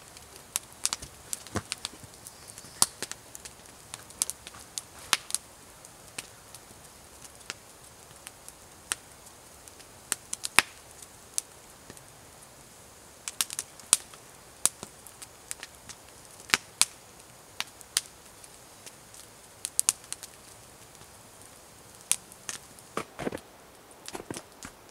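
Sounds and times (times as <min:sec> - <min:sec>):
fire pops and snaps: 0:00.0 - 0:12.1, 0:13.2 - 0:24.9
campfire crackling: 0:00.0 - 0:24.9
faint fire hiss: 0:00.0 - 0:24.9.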